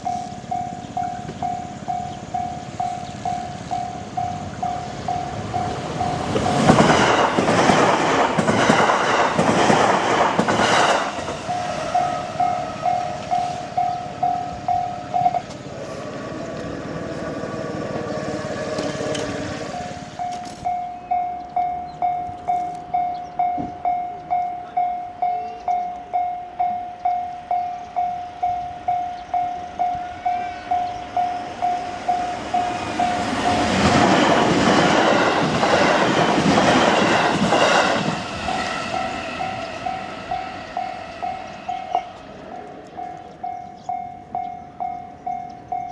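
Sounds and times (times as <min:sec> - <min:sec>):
crossing warning bell ringing: 0:00.0 - 0:45.9
electric train passing: 0:00.0 - 0:45.9.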